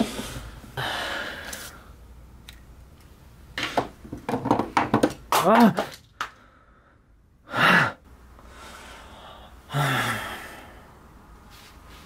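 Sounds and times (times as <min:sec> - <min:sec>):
man gasping: 0:00.8 - 0:01.7, 0:06.4 - 0:11.0
man sighing: 0:09.1 - 0:10.8.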